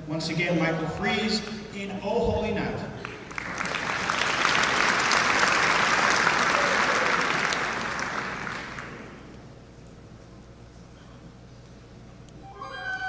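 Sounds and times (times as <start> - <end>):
audience applauding: 3.0 - 9.3.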